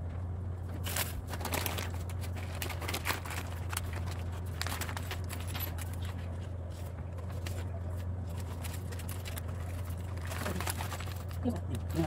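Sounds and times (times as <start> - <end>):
steady low hum: 0.0 - 12.0
paper and plastic bag crinkling: 0.8 - 12.0.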